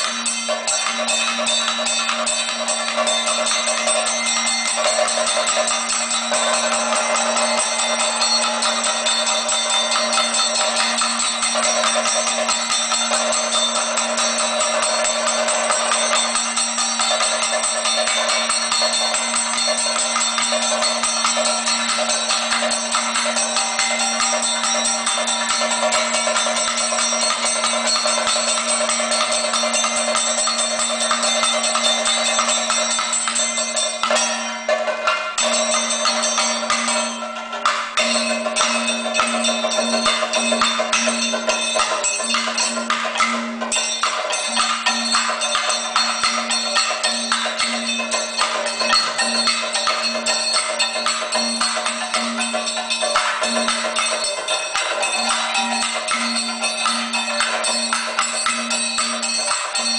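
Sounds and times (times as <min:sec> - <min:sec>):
drum beaten fast with sticks: 0:00.0 - 0:59.9
ringing metallic tones: 0:00.0 - 0:59.9.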